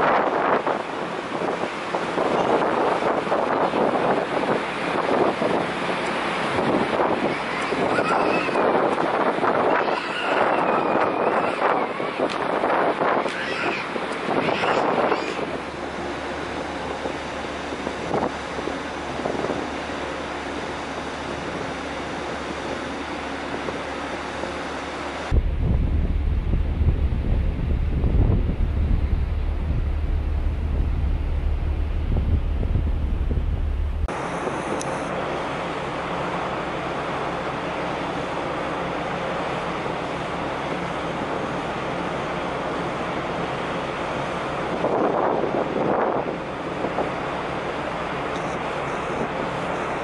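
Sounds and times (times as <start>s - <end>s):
wind buffeting microphone: 0.0s - 34.8s, 43.9s - 48.2s
churning water: 0.0s - 50.0s
faint ship hum: 0.0s - 50.0s
rush of wind: 0.0s - 50.0s
wind rushing: 25.3s - 34.2s.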